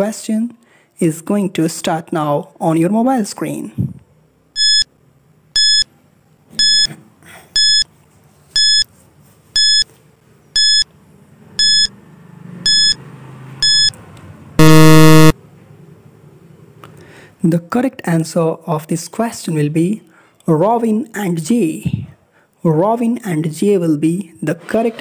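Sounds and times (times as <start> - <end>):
low buzzer: 4.6 - 4.8, 11.6 - 11.9, 12.7 - 13.0, 13.6 - 13.9, 14.6 - 15.4
short high electronic beeps: 4.6 - 4.8, 11.6 - 11.9, 12.7 - 13.0, 13.6 - 13.9, 14.6 - 15.4.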